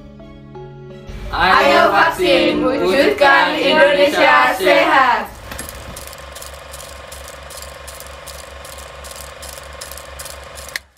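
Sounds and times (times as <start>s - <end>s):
film projector clattering: 5.4s - 10.9s.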